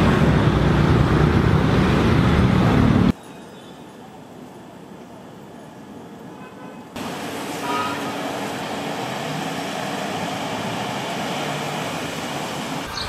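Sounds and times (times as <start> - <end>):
traffic rumble: 0.0 - 3.2.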